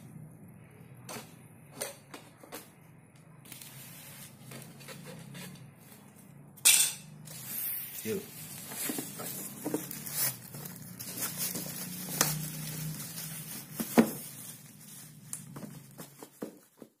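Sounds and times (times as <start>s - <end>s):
plastic wrapping crinkling: 7.3s - 17.0s.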